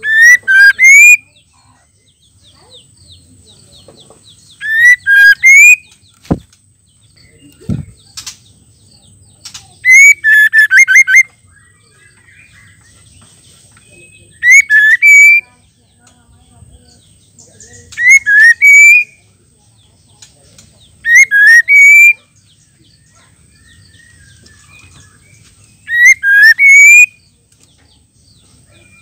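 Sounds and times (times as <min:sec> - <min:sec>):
bird whistling calls: 0:00.0 - 0:01.4, 0:04.5 - 0:06.4, 0:09.8 - 0:11.3, 0:13.9 - 0:15.5, 0:17.9 - 0:19.2, 0:21.0 - 0:22.3, 0:23.6 - 0:27.3.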